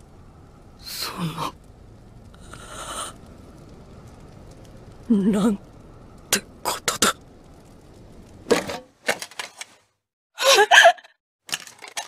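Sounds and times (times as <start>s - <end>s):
faint steady hiss: 0.0s - 8.9s.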